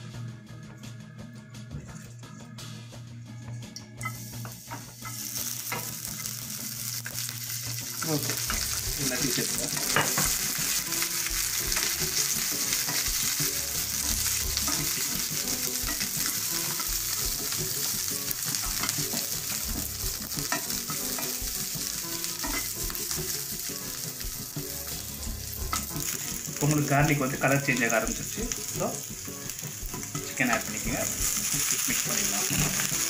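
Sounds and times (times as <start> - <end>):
spices sizzling in hot oil: 4.0 - 33.0
spatula scraping and tapping pan: 9.7 - 17.8, 18.5 - 24.6.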